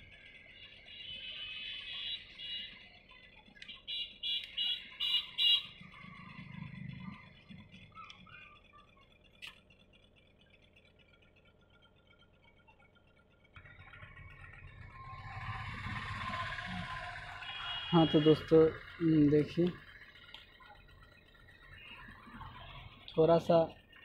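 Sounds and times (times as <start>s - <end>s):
low hum: 4.9s - 24.0s.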